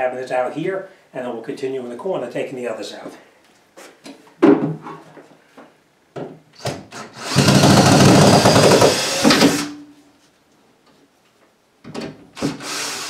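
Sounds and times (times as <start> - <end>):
cordless drill running: 7.0 - 9.7, 12.5 - 13.0.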